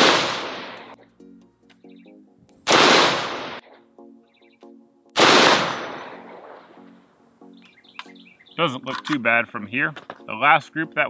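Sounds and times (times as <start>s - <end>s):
rifle gunshots: 0.0s - 1.0s, 2.7s - 3.7s, 5.2s - 6.7s.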